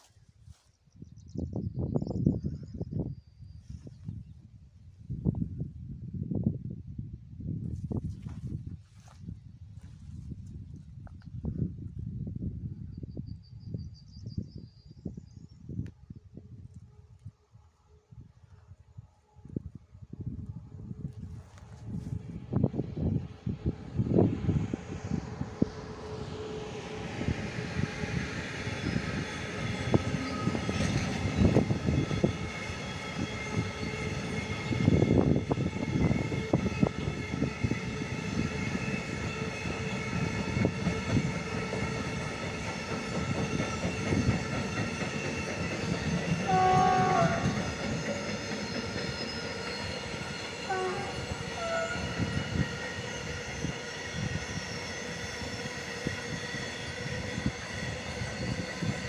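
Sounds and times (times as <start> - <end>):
train wheels clacking: 35.8 - 59.0
locomotive horn blasts: 46.4 - 47.6, 50.6 - 52.3.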